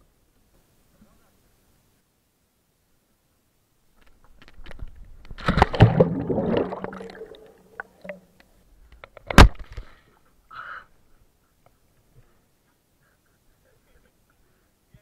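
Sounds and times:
water splashing and sloshing: 5.3 - 8.4.

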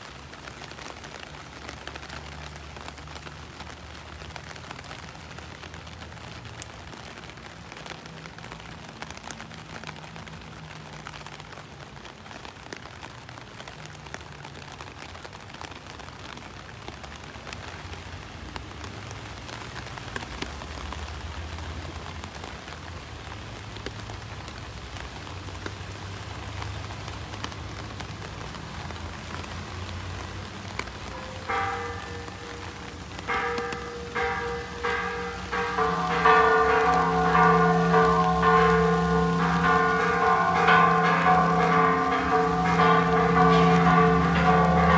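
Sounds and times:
rain on wet paving: 0.0 - 44.9.

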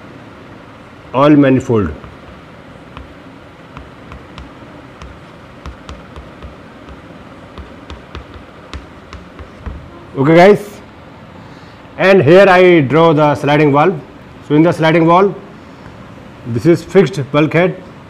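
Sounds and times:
chalk tapping and scraping: 2.0 - 9.8.

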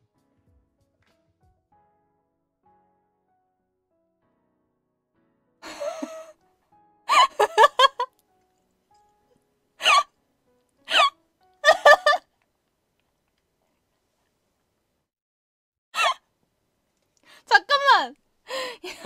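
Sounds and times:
young woman laughing: 5.6 - 6.4, 7.1 - 8.1, 9.8 - 10.1, 10.9 - 12.3, 16.0 - 16.2, 18.5 - 19.0.

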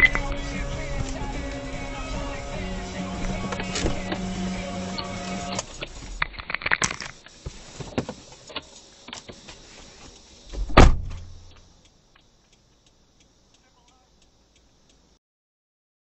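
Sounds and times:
faint ticking: 0.0 - 6.0, 8.3 - 10.6, 11.2 - 15.2
car door slamming: 0.0 - 6.2, 10.6 - 11.4.

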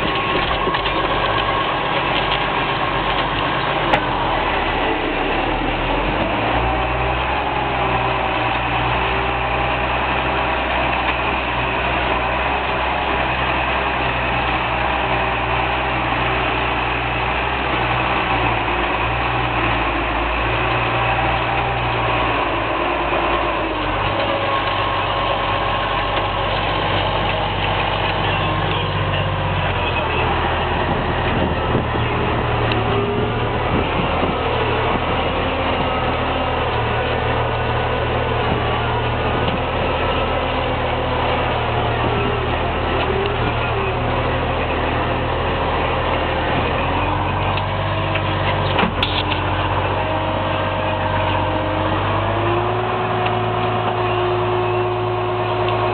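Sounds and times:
tractor diesel engine running: 0.0 - 55.9.

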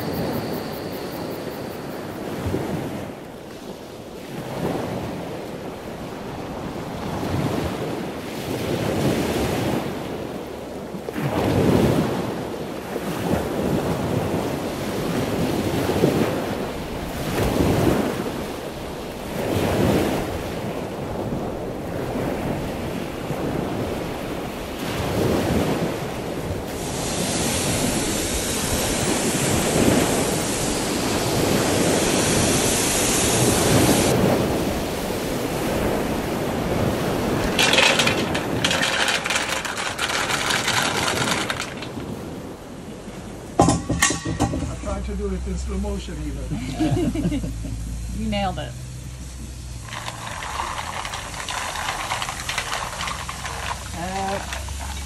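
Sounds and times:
wind noise on microphone: 0.0 - 42.8
steady hiss: 26.6 - 35.6, 43.9 - 55.0.

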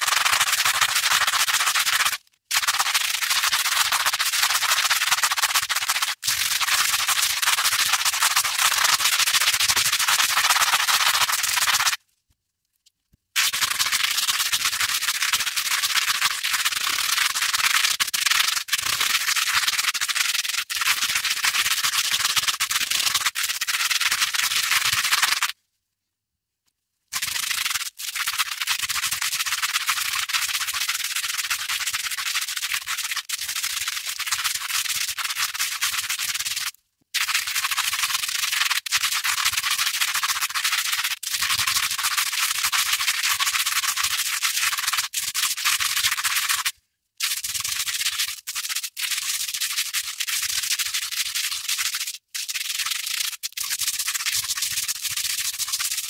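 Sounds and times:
velcro scratching: 0.0 - 6.8, 7.4 - 12.0.

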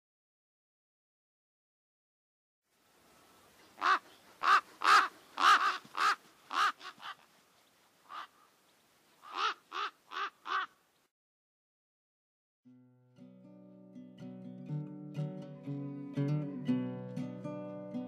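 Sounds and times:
crow cawing: 3.8 - 7.2, 8.0 - 8.5, 9.2 - 10.8.

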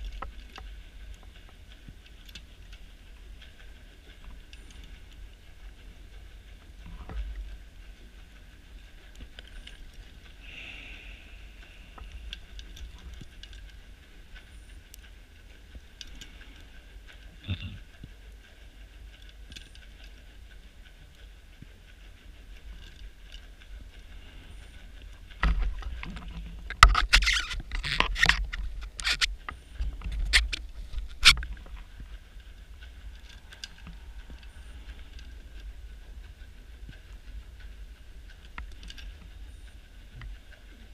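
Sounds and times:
faint underwater hiss: 3.3 - 26.8.

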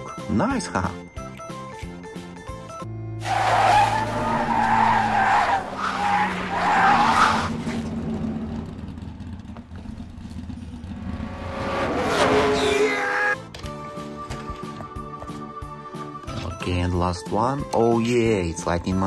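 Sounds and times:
tyres squealing and skidding: 3.2 - 8.3, 11.5 - 13.4
race car engine: 3.2 - 13.4.

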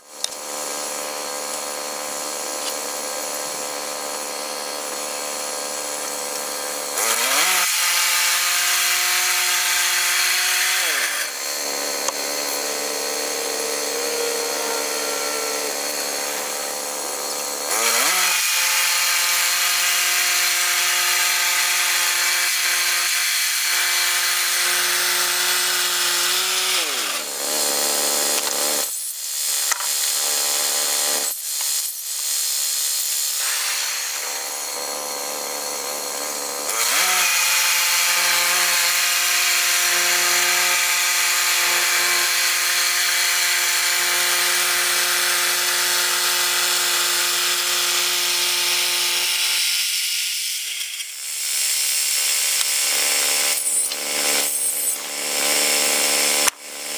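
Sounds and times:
sawmill engine running: 0.2 - 19.6
band blade cutting log: 0.2 - 28.9, 29.5 - 49.7, 50.7 - 56.9.

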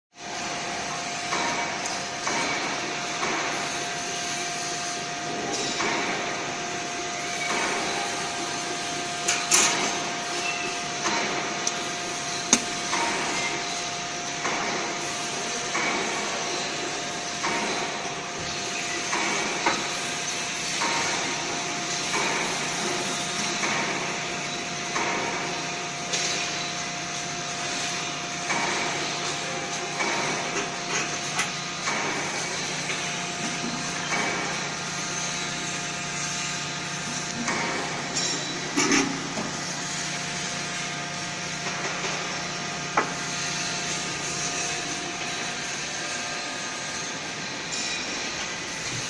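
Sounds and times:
steady machine hum: 0.2 - 49.0.

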